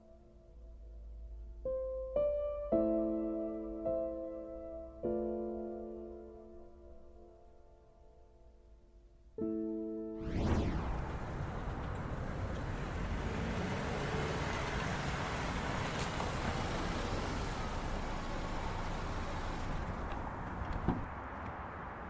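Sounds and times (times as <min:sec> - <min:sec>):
short whoosh: 0:10.2 - 0:12.9
passing cars: 0:10.3 - 0:22.0.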